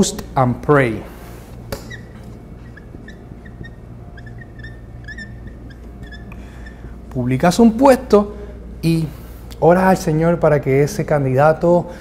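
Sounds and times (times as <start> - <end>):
marker squeaking on whiteboard: 1.7 - 6.9.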